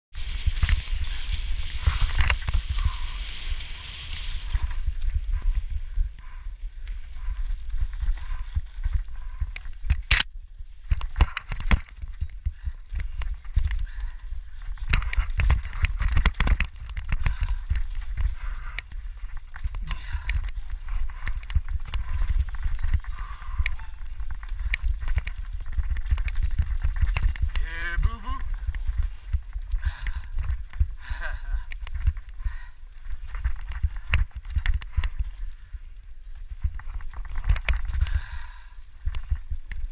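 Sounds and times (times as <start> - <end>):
wind rumble on microphone: 0.0 - 39.9
bike tyres crunching over dirt: 0.1 - 39.9
bike clattering over bumps: 10.7 - 27.6.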